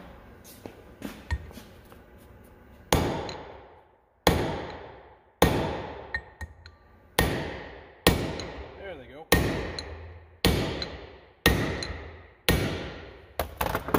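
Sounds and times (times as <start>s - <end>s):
hammer striking steel punch: 2.9s - 13.2s.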